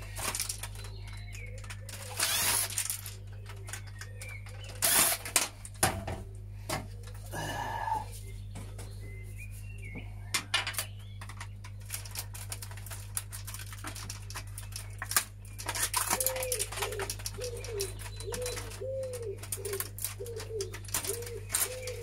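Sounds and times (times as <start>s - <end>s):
plastic parts clicking and rattling: 0.0s - 6.8s, 10.4s - 22.0s
pigeon cooing: 6.0s - 8.4s, 16.0s - 22.0s.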